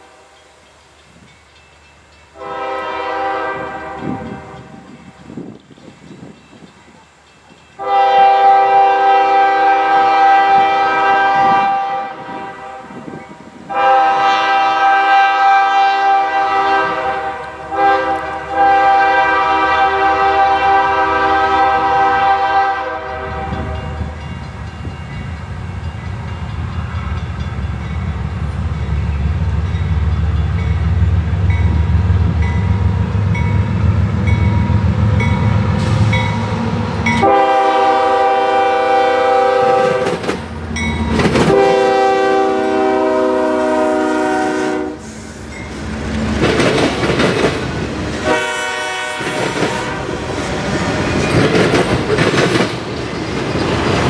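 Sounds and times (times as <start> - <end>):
diesel train rumbling: 0.0 - 54.0
locomotive air horn blasts: 2.4 - 4.9, 7.8 - 24.2, 35.8 - 40.2, 41.5 - 45.3, 48.2 - 50.4.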